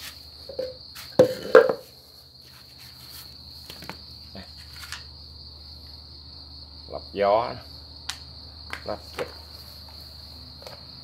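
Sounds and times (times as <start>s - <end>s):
crickets chirring: 0.0s - 11.0s.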